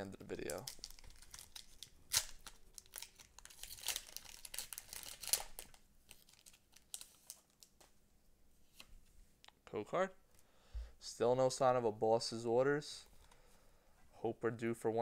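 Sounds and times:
foil wrapper crinkling and tearing: 0.4 - 7.7.

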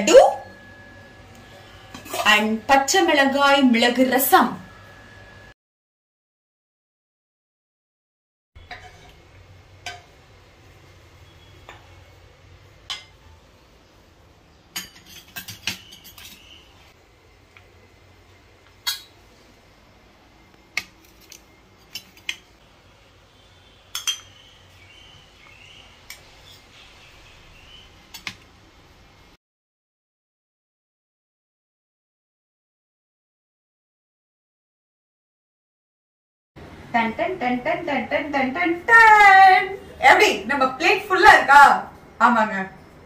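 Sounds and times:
cutlery clinking on plates: 14.8 - 16.5, 18.8 - 19.2, 23.9 - 24.3.

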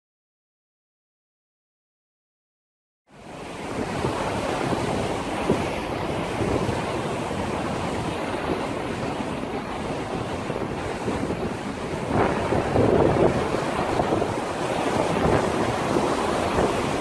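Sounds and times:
waves washing: 3.1 - 17.0
wind buffeting microphone: 3.4 - 17.0.

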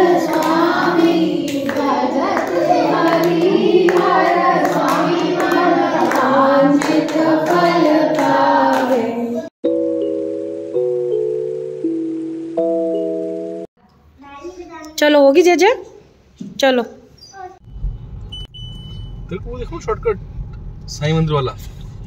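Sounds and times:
hands clapping a beat: 0.0 - 9.2
voices singing a hymn: 0.0 - 9.5.

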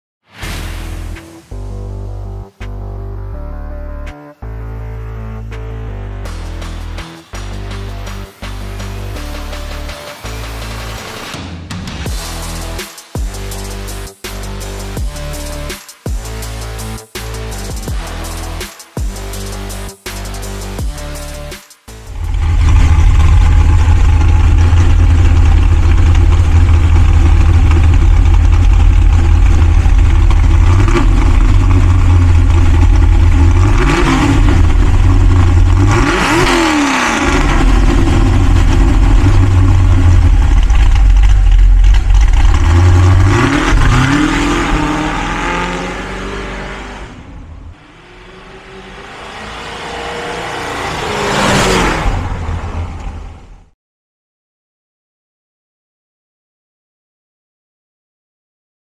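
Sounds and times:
car approaching: 21.9 - 53.8
car engine idling with throttle blips: 22.1 - 51.2.

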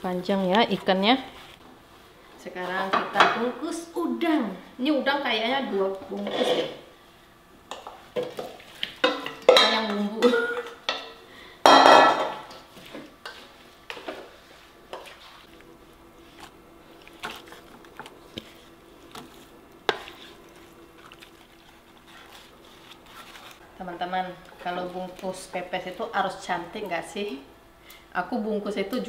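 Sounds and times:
wooden spoon scraping metal bowl: 6.1 - 6.8, 17.2 - 25.6.

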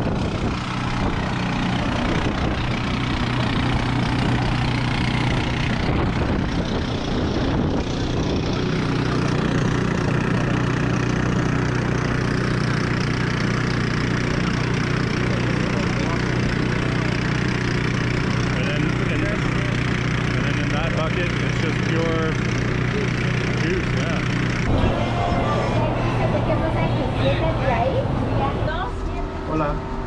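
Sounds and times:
small engine humming: 0.0 - 30.0.

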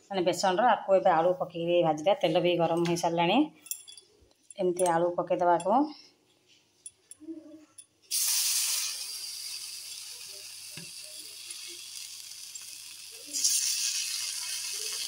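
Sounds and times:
potato pieces sizzling in oil: 8.1 - 15.0.

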